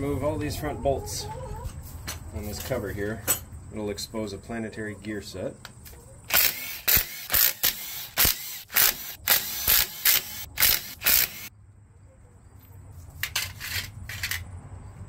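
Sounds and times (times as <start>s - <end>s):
impact driver bursts: 6.3s - 11.5s.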